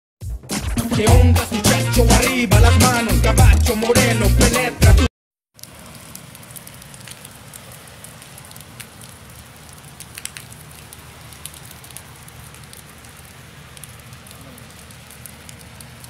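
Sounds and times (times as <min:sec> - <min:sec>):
rain pattering on wet paving: 0:05.6 - 0:16.0.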